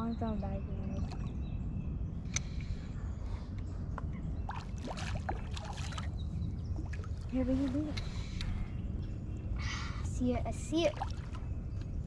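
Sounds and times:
steady low rumble: 0.0 - 12.0
fish splashing in water: 4.5 - 6.2.

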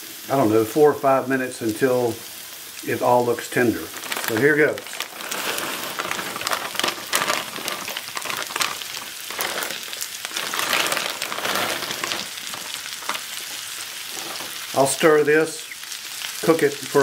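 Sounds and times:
corn kernels pouring into skillet: 0.0 - 17.0
onions sizzling in skillet: 0.0 - 17.0.

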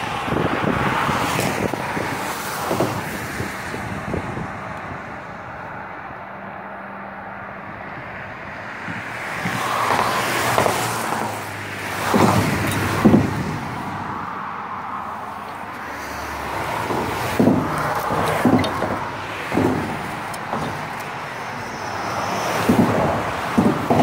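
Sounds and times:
tyre rush of passing traffic: 0.0 - 24.0
wheels clunking on expansion joint: 9.2 - 24.0.

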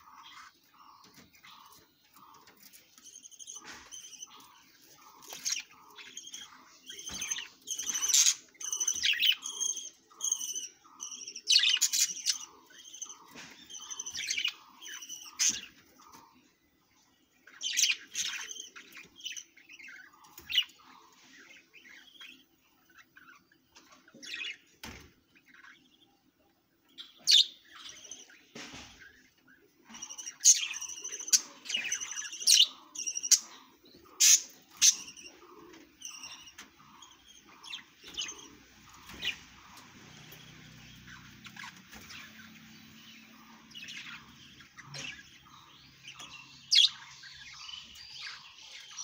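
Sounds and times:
budgerigars chirping and chattering: 0.0 - 49.0.

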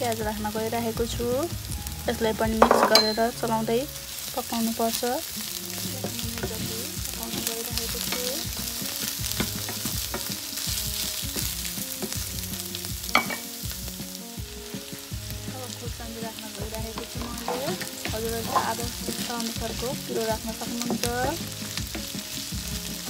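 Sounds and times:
food sizzling in hot oil: 0.0 - 23.0
wooden spatula scraping a pan: 16.9 - 23.0.

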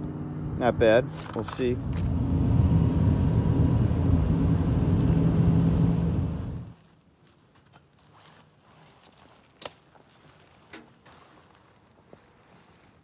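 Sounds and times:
vehicle cabin engine and road rumble: 0.0 - 6.8.

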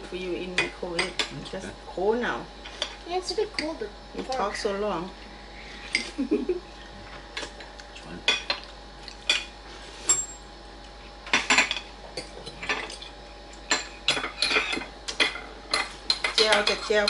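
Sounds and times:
cutlery clinking on plates: 13.7 - 17.0.

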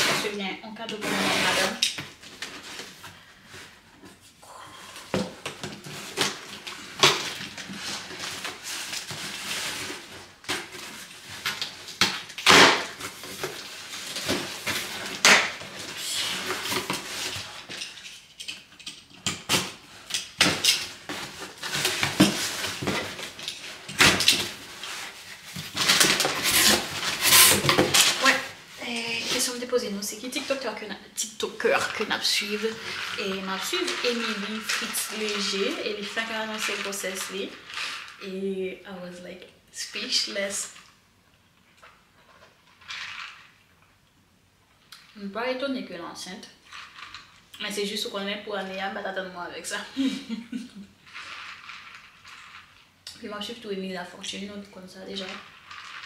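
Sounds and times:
contents rustling: 0.0 - 38.2, 46.6 - 48.0, 49.6 - 53.5, 54.2 - 56.0
box cutter slicing tape: 12.4 - 13.0, 25.9 - 28.3.

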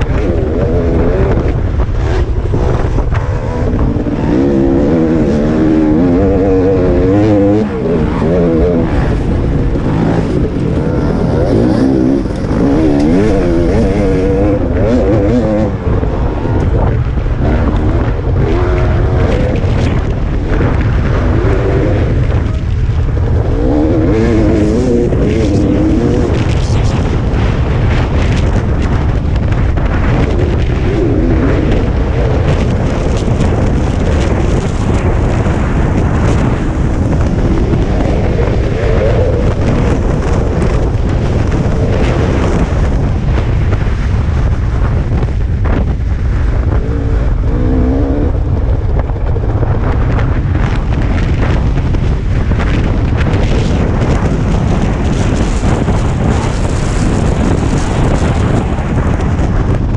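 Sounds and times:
dirt bike engine revving: 0.0 - 29.1, 29.8 - 42.9
heavy low rumble: 0.0 - 59.9.

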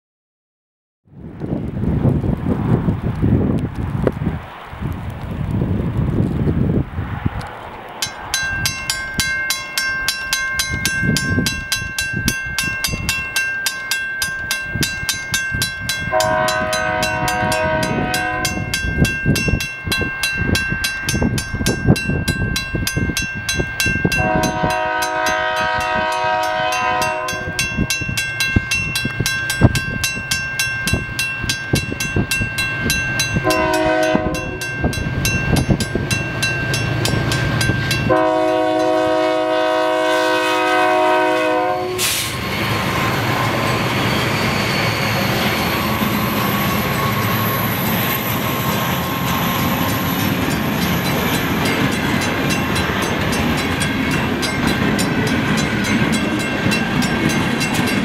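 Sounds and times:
crossing bell ringing: 8.0 - 58.0
locomotive horn blasts: 16.1 - 18.8, 24.1 - 27.7, 33.4 - 34.7, 38.0 - 42.3.

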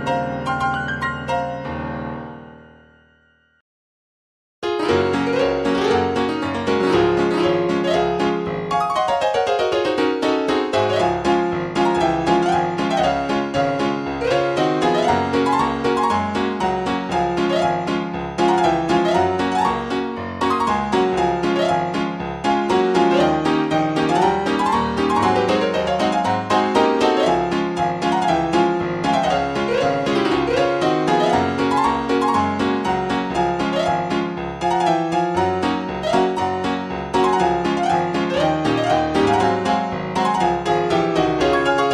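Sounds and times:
solo piano music: 0.0 - 3.6, 4.6 - 41.9.

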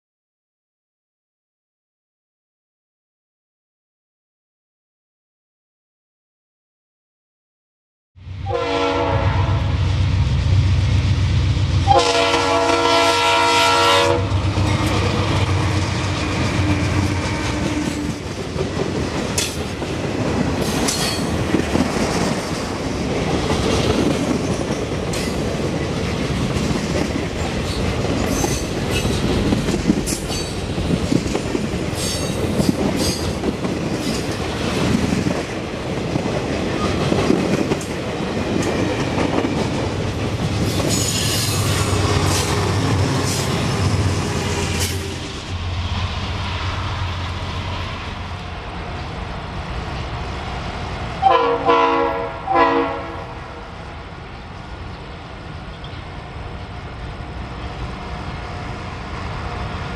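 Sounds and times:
train wheels rumbling on rails: 8.3 - 59.9
locomotive air horn: 8.4 - 9.8, 11.8 - 14.8, 51.2 - 53.4.

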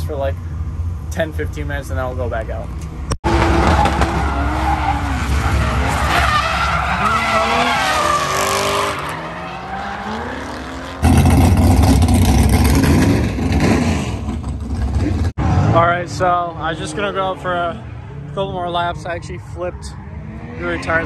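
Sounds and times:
car engines revving: 0.0 - 21.0
tyre squeal: 3.6 - 10.8.

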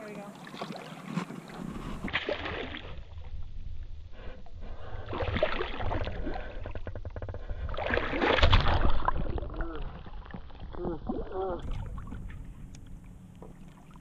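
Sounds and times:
water sloshing and splashing: 0.0 - 14.0
low rumble: 1.6 - 14.0.

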